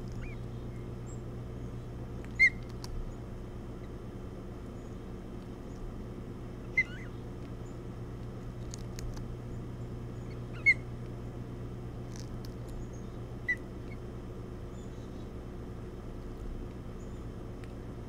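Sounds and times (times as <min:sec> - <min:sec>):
ospreys chirping: 0:00.0 - 0:04.0, 0:06.6 - 0:07.9, 0:09.4 - 0:11.0, 0:12.6 - 0:14.1
low hum: 0:00.0 - 0:18.0.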